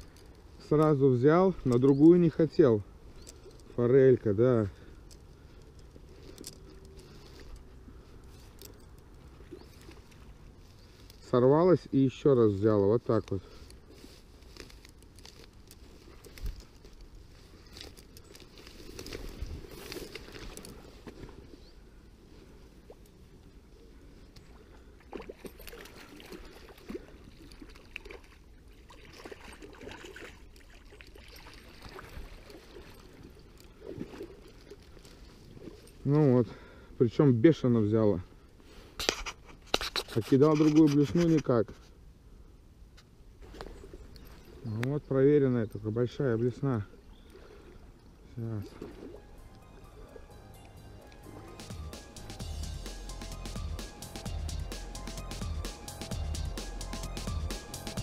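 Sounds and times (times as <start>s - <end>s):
river water flowing: 2.0s - 11.6s, 13.5s - 37.0s, 46.2s - 58.0s.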